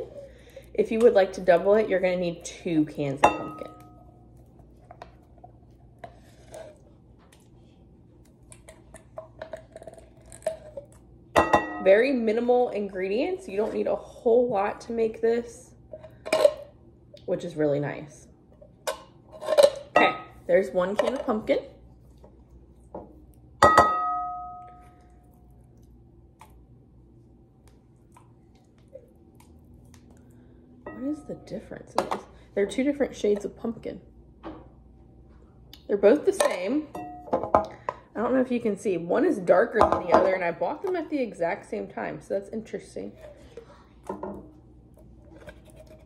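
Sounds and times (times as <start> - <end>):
glass bowl struck ringing: 23.6 - 25.0.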